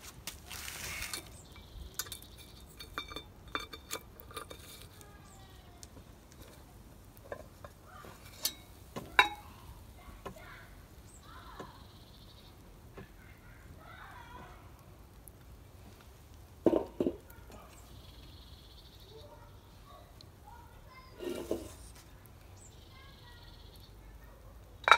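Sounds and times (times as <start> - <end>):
metal lid lifter clinking and scraping: 1.0 - 5.0, 7.2 - 9.4, 21.2 - 21.9
ringing metallic clink: 1.6 - 4.7.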